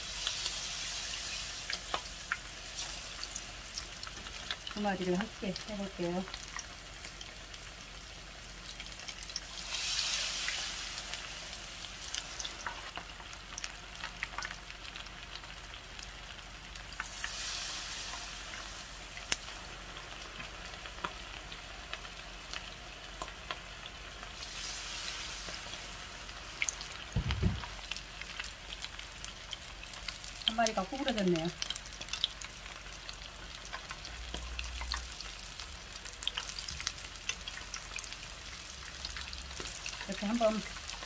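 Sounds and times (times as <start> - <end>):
deep-frying sizzle: 0.0 - 41.0
brief low thump: 27.2 - 27.8.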